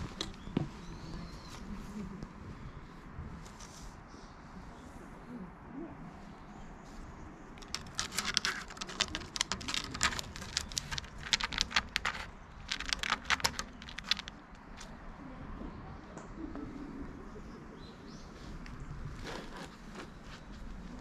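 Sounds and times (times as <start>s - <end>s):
cat scratching wood: 7.6s - 14.8s.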